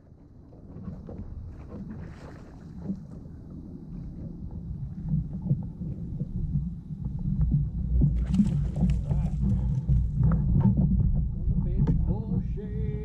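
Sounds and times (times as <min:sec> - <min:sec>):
low rumble of water: 0:00.0 - 0:13.0
wind: 0:00.0 - 0:13.0.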